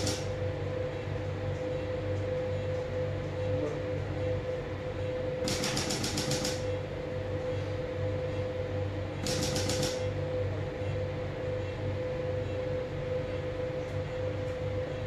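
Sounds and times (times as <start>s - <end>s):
rapid machine clicks: 0.0s - 0.3s, 5.4s - 6.8s, 9.2s - 10.1s
low equipment hum: 0.0s - 15.0s.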